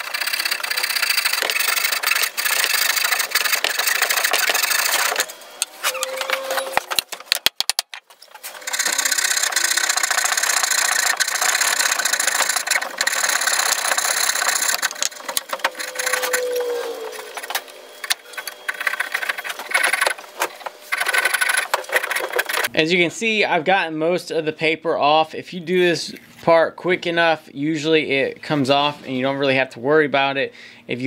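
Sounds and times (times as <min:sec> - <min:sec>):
saw cutting wood: 0:00.0 - 0:07.0, 0:08.4 - 0:22.7.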